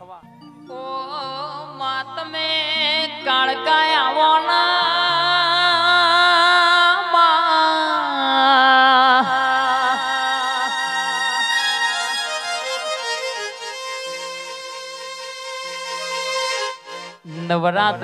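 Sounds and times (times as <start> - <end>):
wavering held lead melody: 10.0 - 18.0.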